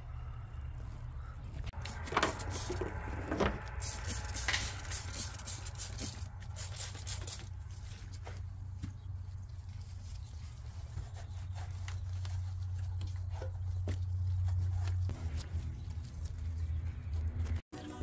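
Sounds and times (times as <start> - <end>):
steady low hum: 0.0 - 17.6
spray bottle hissing sprays: 1.8 - 2.9, 3.7 - 7.5.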